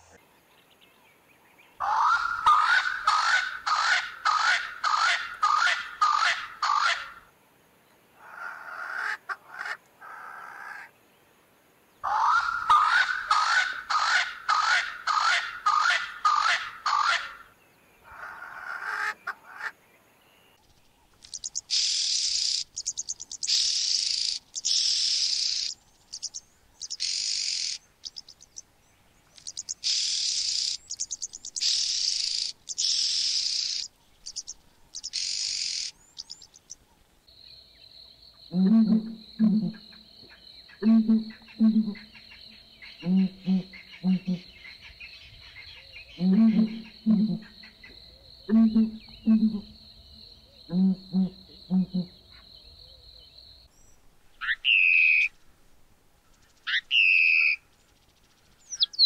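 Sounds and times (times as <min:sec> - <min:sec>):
oxpeckers hissing calls: 0:01.8 - 0:07.2, 0:12.0 - 0:19.8, 0:21.0 - 0:37.0, 0:54.4 - 0:55.3, 0:56.7 - 0:57.6, 0:58.6 - 0:59.0
spurfowl harsh swooping calls: 0:01.8 - 0:07.2, 0:12.1 - 0:17.4.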